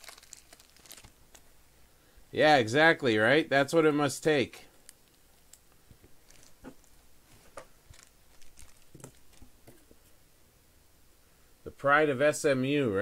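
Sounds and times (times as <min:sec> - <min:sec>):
cards and plastic sleeves crinkling: 0:00.0 - 0:01.5, 0:04.7 - 0:09.9.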